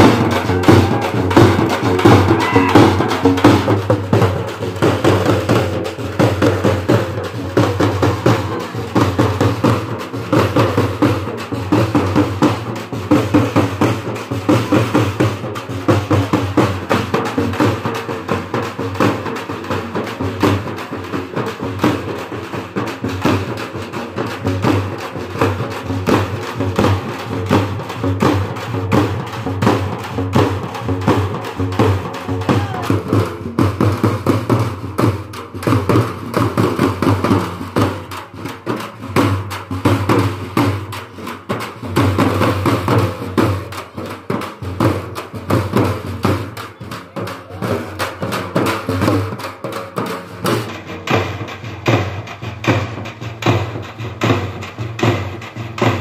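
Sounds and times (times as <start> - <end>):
crowd voices: 0.0 - 4.3, 32.1 - 33.1
frame drums beaten fast: 0.0 - 56.0.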